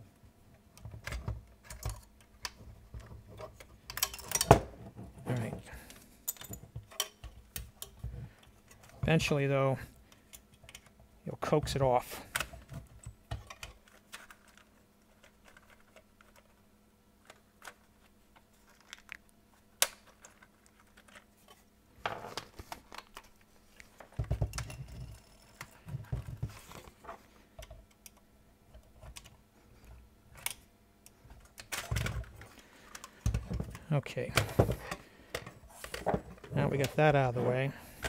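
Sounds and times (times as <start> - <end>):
plastic and metal clicks and rattles: 0.8 - 4.6, 12.3 - 16.6.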